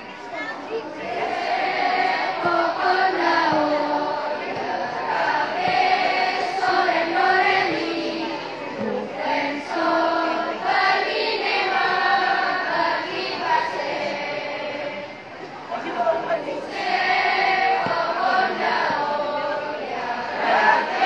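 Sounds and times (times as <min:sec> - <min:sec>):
children's choir singing: 0:00.0 - 0:21.0.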